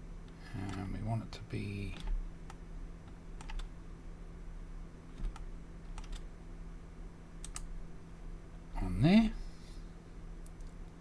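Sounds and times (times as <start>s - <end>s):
low steady hum: 0.0s - 11.0s
mouse and keyboard clicks: 5.2s - 6.2s.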